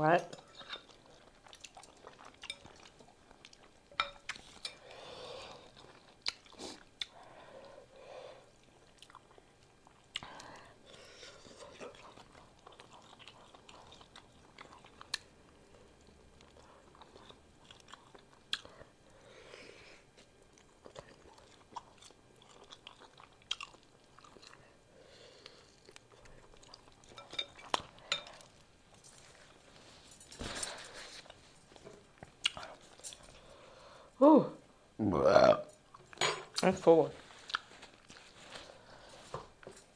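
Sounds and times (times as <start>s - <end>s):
person chewing: 0.5s - 7.2s, 8.4s - 19.1s, 20.0s - 29.6s, 30.2s - 33.8s, 37.3s - 39.9s
rustling noise: 37.1s - 39.2s.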